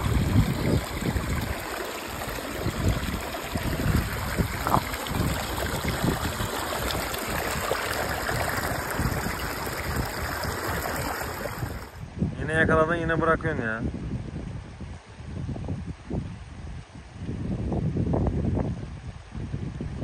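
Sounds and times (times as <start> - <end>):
stream running over rocks: 0.0 - 12.0
water sloshing around a hand: 0.0 - 12.0.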